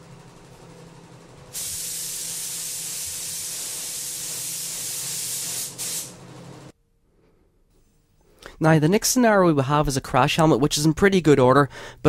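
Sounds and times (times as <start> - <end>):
spray gun hissing: 1.5 - 6.2.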